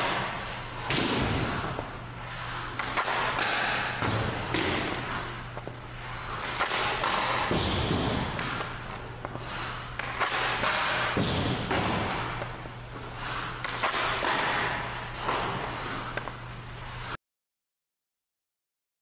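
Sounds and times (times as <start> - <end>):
puck hitting goalie pads: 0.0 - 1.9, 2.6 - 12.6, 13.2 - 16.3
hockey stick hitting puck: 0.0 - 16.4
skates scraping ice: 0.0 - 17.2
steady low hum: 0.0 - 17.2.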